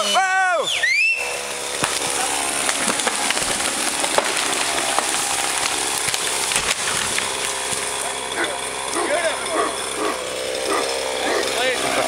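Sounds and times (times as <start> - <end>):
chainsaw idling: 0.0 - 12.0
tree trunk cracking and snapping: 1.4 - 9.0.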